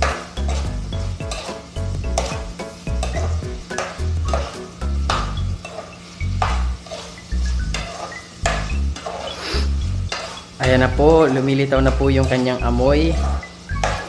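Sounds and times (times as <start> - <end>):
background music with bass: 0.0 - 5.6, 6.2 - 9.0, 9.6 - 14.0
food sizzling in hot oil: 0.0 - 14.0
spatula scraping a wok: 0.0 - 14.0.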